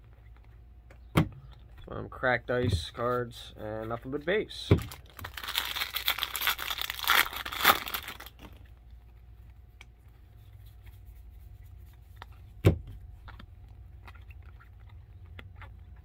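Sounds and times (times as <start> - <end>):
wrapper crinkling and tearing: 4.8 - 8.7.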